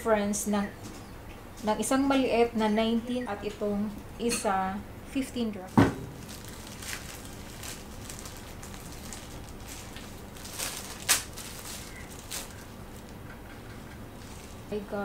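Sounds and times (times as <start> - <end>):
plastic wrapping crinkling: 5.7 - 14.9.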